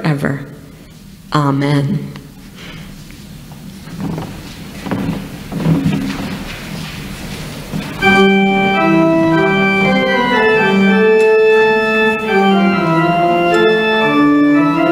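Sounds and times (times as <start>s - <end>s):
organ playing held chords: 7.8s - 14.9s.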